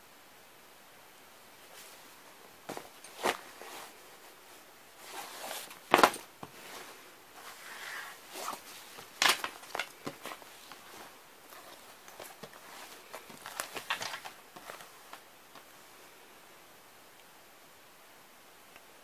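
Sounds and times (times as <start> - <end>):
fabric bags rustling: 1.6 - 15.7.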